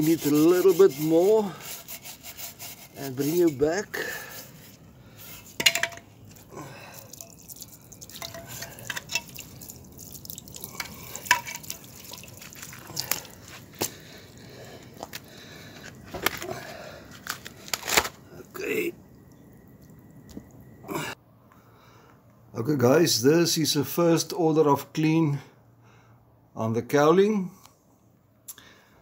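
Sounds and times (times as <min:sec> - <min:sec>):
steel wool scrubbing: 0:00.0 - 0:05.6
water splashing on metal tank: 0:06.9 - 0:13.4.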